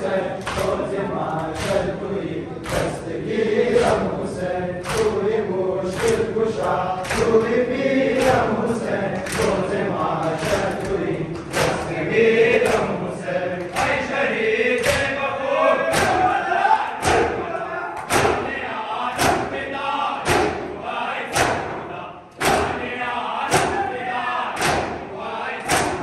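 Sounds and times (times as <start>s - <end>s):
men chanting together: 0.0s - 26.0s
chest-beating slaps: 0.4s - 1.9s, 2.6s - 3.0s, 4.8s - 5.2s, 5.9s - 7.5s, 8.1s - 8.6s, 9.2s - 13.0s, 13.6s - 14.1s, 14.8s - 15.2s, 15.9s - 16.3s, 17.0s - 17.4s, 18.0s - 18.6s, 19.2s - 22.9s, 23.5s - 23.9s, 24.6s - 26.0s.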